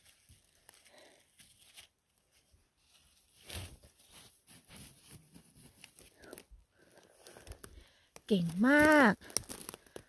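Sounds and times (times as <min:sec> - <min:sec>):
leaf litter rustling and crackling: 0:07.0 - 0:10.0.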